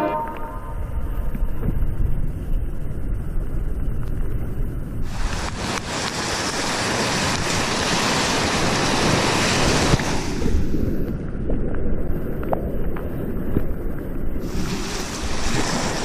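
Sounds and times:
wind buffeting microphone: 0.0 - 16.0
river whitewater rushing: 5.1 - 10.4.

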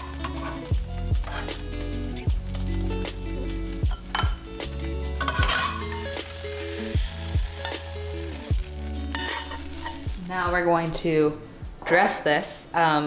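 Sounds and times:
slow beat music with chords: 0.1 - 5.3
steady hiss: 5.8 - 13.0.

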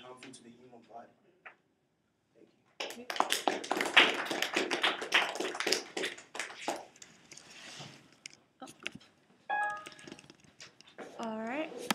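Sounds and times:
audience clapping: 2.8 - 7.0.

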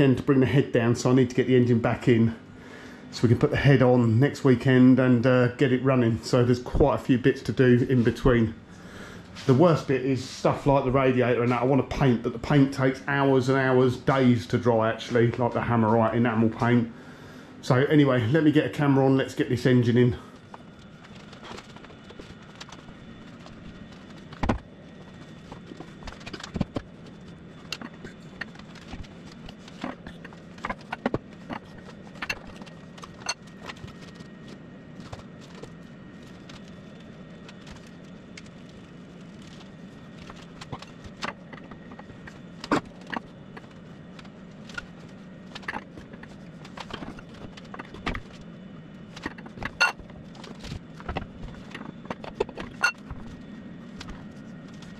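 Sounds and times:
steady low hum: 0.0 - 54.9.

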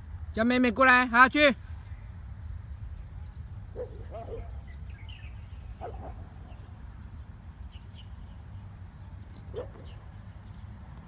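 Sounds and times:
low outdoor rumble: 0.0 - 11.0
faint bird chirps: 1.9 - 10.7.

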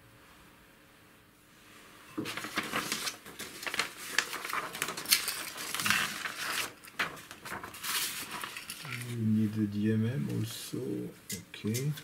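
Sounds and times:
paper rustling: 2.2 - 9.2.

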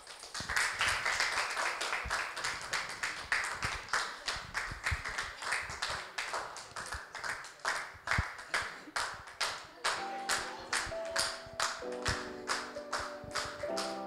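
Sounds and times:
audience clapping: 0.0 - 14.0.

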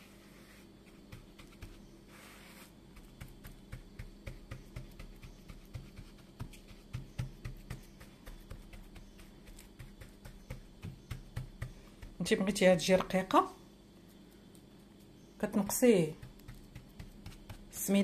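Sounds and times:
fingertips patting dough in pan: 0.9 - 2.0, 2.9 - 13.3, 15.4 - 18.0.

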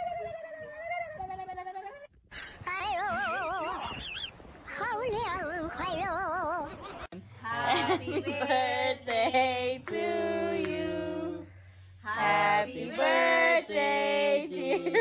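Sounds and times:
person singing unaccompanied: 7.4 - 11.5.

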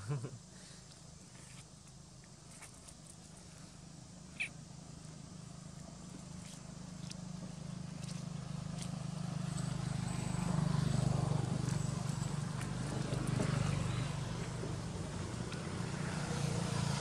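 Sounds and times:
vehicle engine humming: 3.8 - 17.0.

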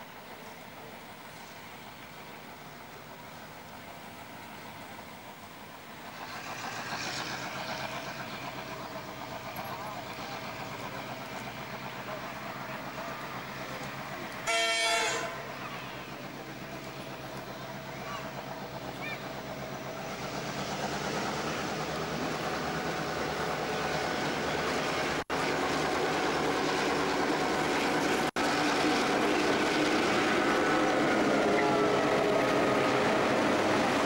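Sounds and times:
locomotive engine running: 0.0 - 34.0
train horn blast: 14.4 - 15.5, 31.4 - 32.4.

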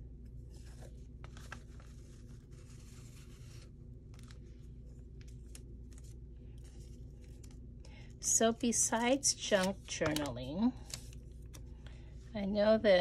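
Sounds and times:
paper rustling and clicking: 9.0 - 11.7.

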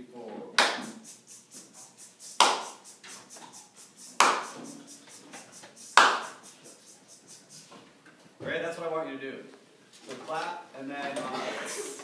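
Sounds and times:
hand claps with room echo: 0.6 - 7.4.

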